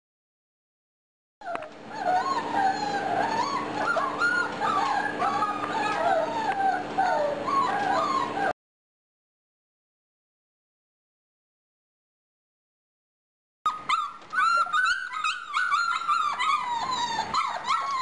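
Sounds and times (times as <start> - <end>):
puppies whining and yelping: 1.4 - 8.6, 13.7 - 18.0.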